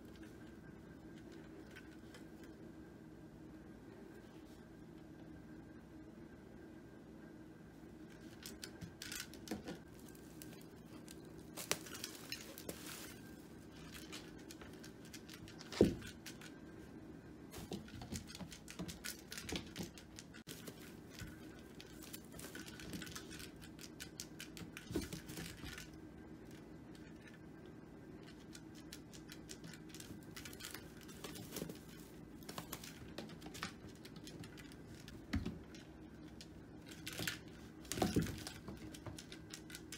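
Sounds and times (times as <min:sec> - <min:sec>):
low steady hum: 0:00.0 - 0:39.9
kitten tapping and scratching: 0:17.5 - 0:26.0, 0:28.2 - 0:39.9.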